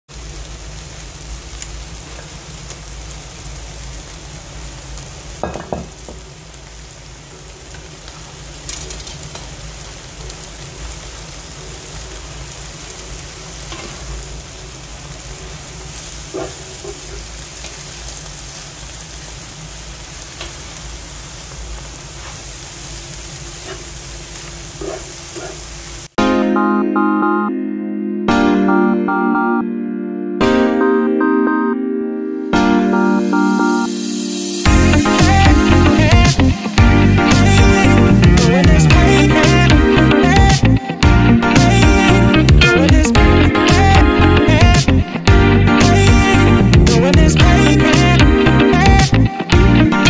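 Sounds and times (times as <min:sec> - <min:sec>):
frying hiss: 0:00.1 - 0:26.2, 0:32.8 - 0:50.0
spatula scraping a wok: 0:16.3 - 0:17.4, 0:23.5 - 0:24.0, 0:24.8 - 0:25.7.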